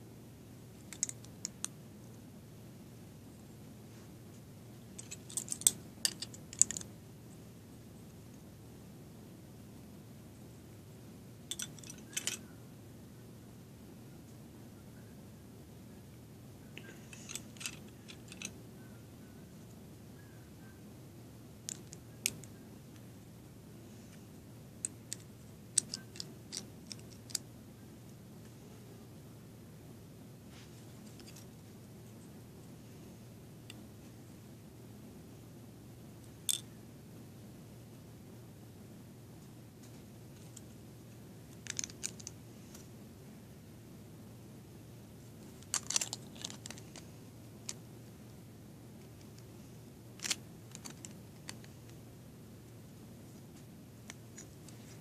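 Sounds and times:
low steady hum: 0.0 - 55.0
plastic bricks clicking together: 24.8 - 27.4, 41.6 - 42.3.

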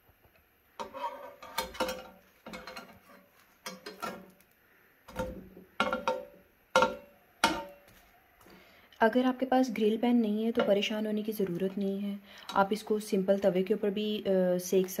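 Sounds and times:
metal spatula on grill pan: 0.8 - 4.3.

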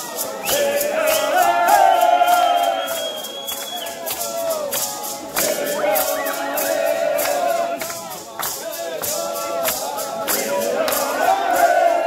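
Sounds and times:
rattle shaken on a beat: 0.0 - 12.0
group chanting in unison: 0.4 - 3.0, 5.1 - 8.2, 8.8 - 12.0.

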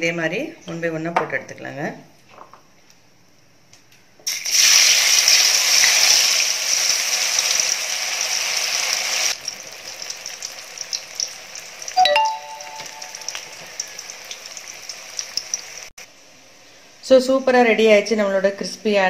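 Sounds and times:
potatoes sizzling in hot oil: 4.3 - 12.0, 12.7 - 16.0.

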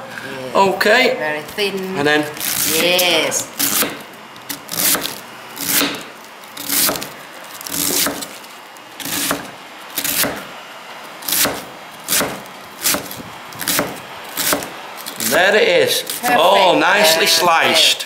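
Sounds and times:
knife slicing cabbage: 2.4 - 3.0, 3.6 - 10.5, 11.2 - 15.3
knife striking wooden board: 3.6 - 4.0, 4.8 - 7.1, 7.7 - 8.3, 9.0 - 10.4, 11.3 - 14.7.

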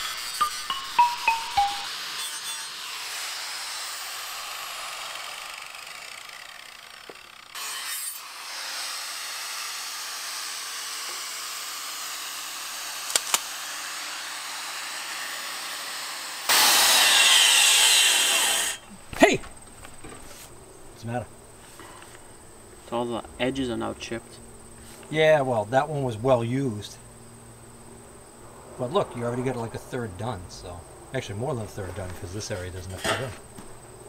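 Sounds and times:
angle grinder sanding steel: 0.0 - 5.5, 7.6 - 12.6, 13.8 - 18.8.

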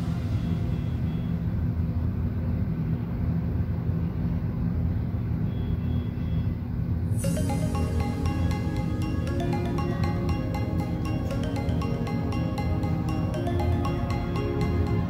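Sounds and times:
music with higher notes: 7.2 - 15.0.

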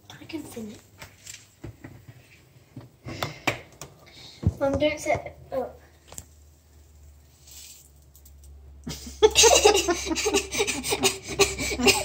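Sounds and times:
person giggling: 8.9 - 12.0.

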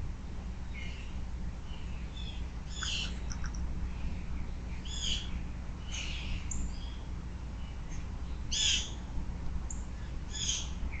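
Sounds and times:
low steady hum: 0.0 - 11.0
harsh bird calls: 1.7 - 3.6.

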